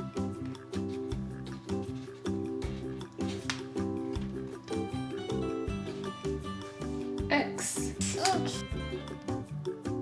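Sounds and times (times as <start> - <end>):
light tune with steady beat: 0.0 - 10.0.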